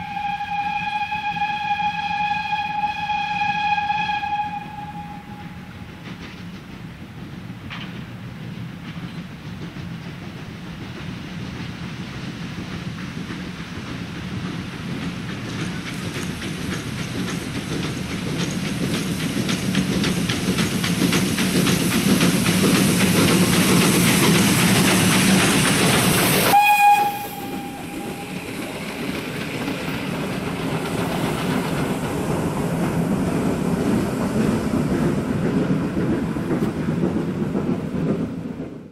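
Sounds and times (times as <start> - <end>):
locomotive whistle: 0.0 - 5.9, 26.4 - 29.2
steam locomotive exhaust beats: 0.0 - 38.9
train coaches clattering over rails: 5.2 - 38.9.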